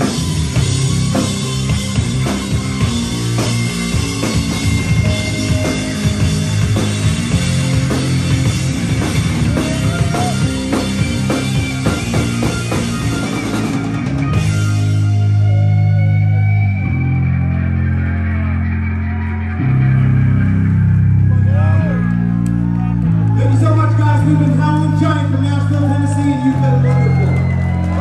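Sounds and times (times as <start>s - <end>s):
drum kit: 0.0s - 18.1s
distorted electric guitar: 0.0s - 23.4s
electric bass: 0.0s - 28.0s.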